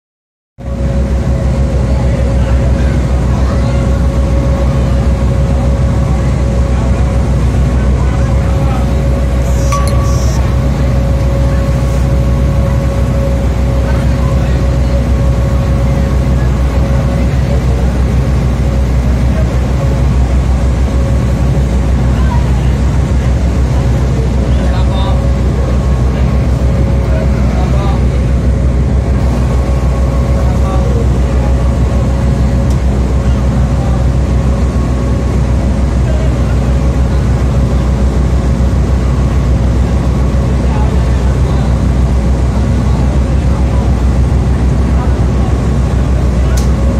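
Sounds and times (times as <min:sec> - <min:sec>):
water rushing along hull: 0:00.6 - 0:46.9
ferry engine droning: 0:00.7 - 0:46.9
thin steady whine: 0:08.4 - 0:15.2.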